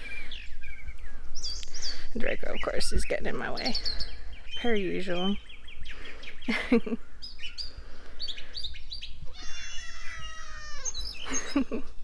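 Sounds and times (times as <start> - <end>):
small birds chirping: 0.0 - 12.0
cat meowing: 9.3 - 11.2.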